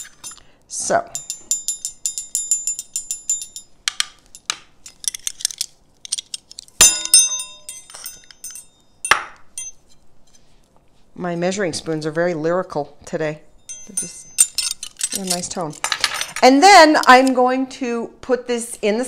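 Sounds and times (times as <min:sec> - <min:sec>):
measuring spoons clinking: 0:00.0 - 0:00.4, 0:01.1 - 0:09.9, 0:13.7 - 0:17.3.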